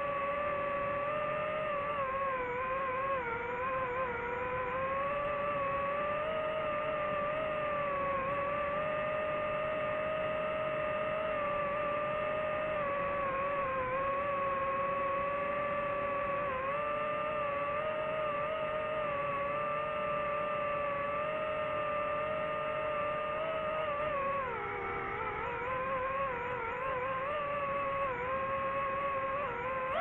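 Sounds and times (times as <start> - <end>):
drone propellers whining: 0.0 - 30.0.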